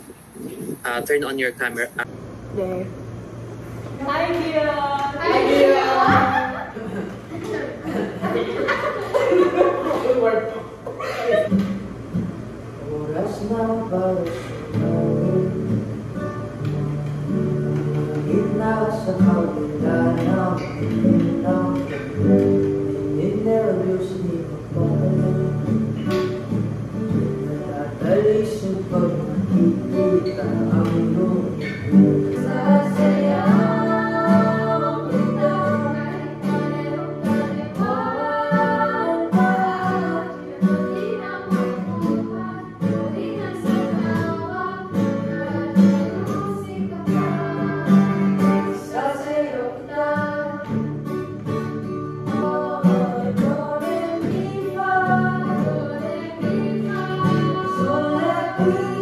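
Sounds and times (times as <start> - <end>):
acoustic guitars and ukulele strumming: 3.7 - 59.0
women singing: 4.0 - 9.6, 27.3 - 50.9, 52.2 - 59.0.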